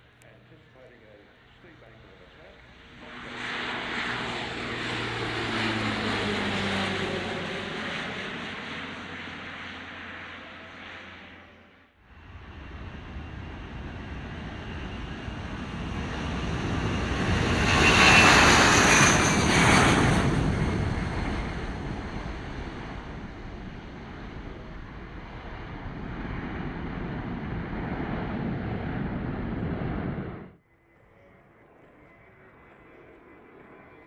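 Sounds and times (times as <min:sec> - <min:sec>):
jet aircraft taking off: 0:00.2 - 0:34.0.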